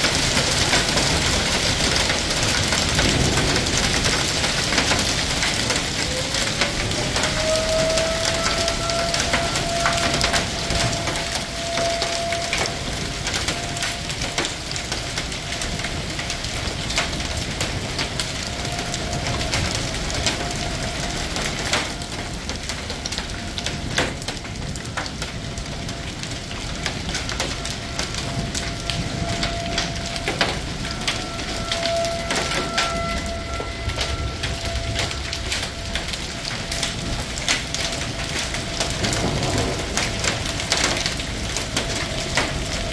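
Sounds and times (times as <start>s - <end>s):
hailstones ticking: 0.0s - 42.9s
heavy rain hiss: 0.0s - 42.9s.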